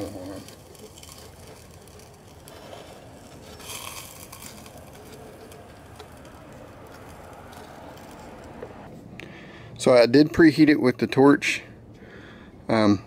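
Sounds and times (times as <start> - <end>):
gas torch flame hissing: 0.0 - 8.9.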